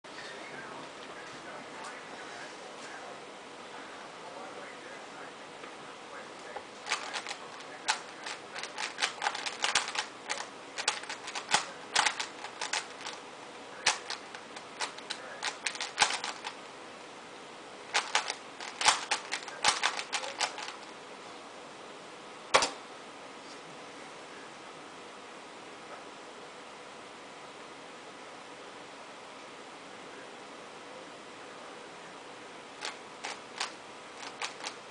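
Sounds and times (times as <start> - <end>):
puzzle cube plastic clicks: 6.8 - 13.2, 13.8 - 16.6, 17.9 - 20.9, 32.8 - 34.8.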